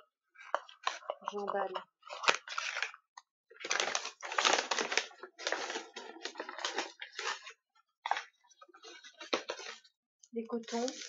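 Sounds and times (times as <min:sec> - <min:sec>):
paper bag crinkling: 0:02.1 - 0:09.9, 0:10.6 - 0:11.0.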